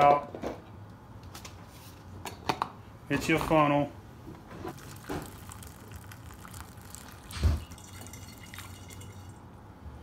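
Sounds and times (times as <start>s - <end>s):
syrup trickling into glass jug: 4.7s - 9.4s.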